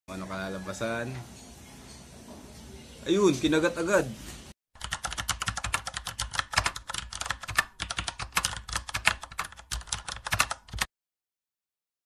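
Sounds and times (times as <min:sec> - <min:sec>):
rapid keyboard key clicks: 0:04.8 - 0:10.9.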